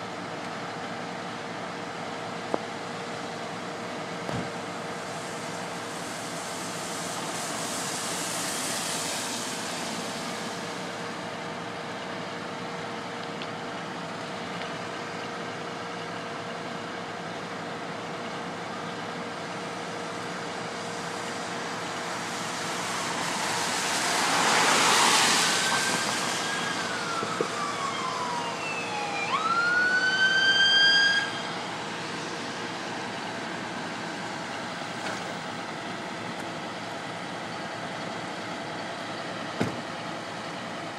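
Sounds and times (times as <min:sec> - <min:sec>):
traffic on wet road: 0:00.0 - 0:40.9
tyres hissing past: 0:04.9 - 0:11.2, 0:20.8 - 0:27.7
siren sweep: 0:21.3 - 0:33.4.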